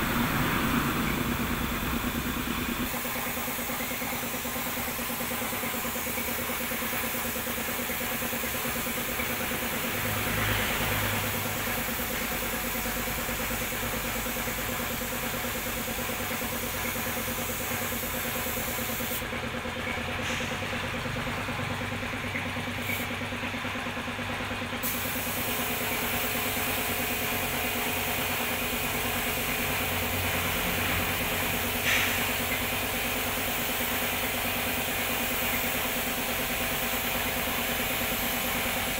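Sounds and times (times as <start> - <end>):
spray gun hissing: 0.0 - 10.0, 10.8 - 19.2, 24.8 - 30.2, 30.8 - 38.9
air compressor humming: 0.0 - 38.9.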